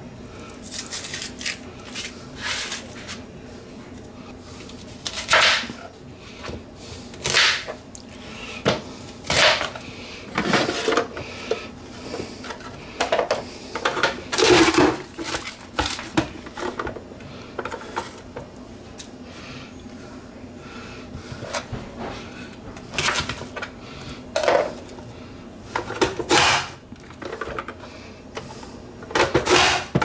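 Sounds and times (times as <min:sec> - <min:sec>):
onion crunching: 0:00.5 - 0:03.2.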